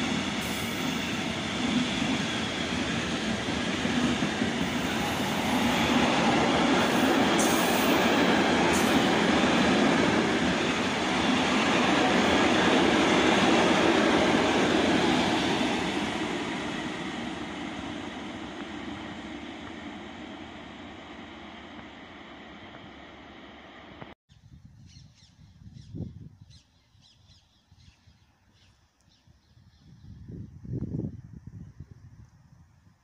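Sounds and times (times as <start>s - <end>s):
freight train wheels on rails: 0.0s - 24.2s.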